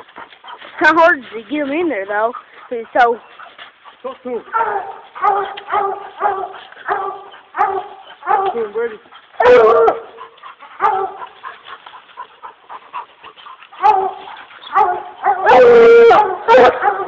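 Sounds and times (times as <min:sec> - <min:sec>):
dogs barking: 0:02.3 - 0:17.0
dog bawling: 0:13.8 - 0:17.0.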